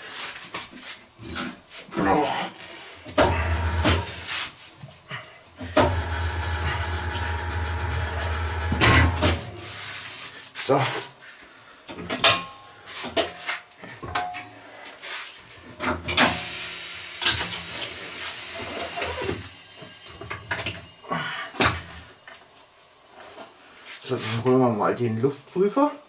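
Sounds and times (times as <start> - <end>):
hiss: 3.8 - 5.8, 9.5 - 11.1, 16.1 - 22.4.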